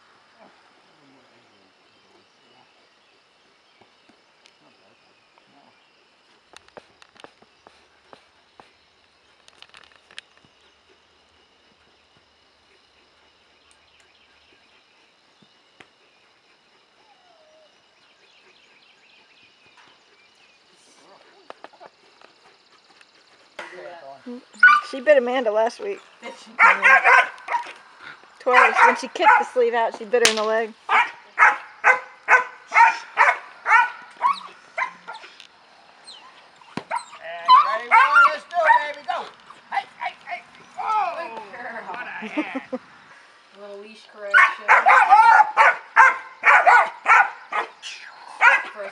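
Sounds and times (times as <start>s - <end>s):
puppy barking: 24.6s - 24.9s, 26.6s - 27.8s, 28.5s - 29.6s, 30.9s - 35.3s, 36.9s - 39.0s, 44.3s - 47.7s, 48.4s - 48.8s
faint high chirping: 30.9s - 35.4s.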